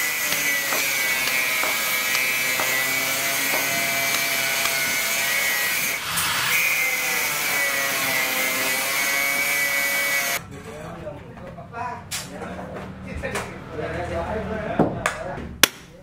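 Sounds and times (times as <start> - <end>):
hammer striking chisel: 0.0 - 6.6
power tool whining: 0.0 - 10.4.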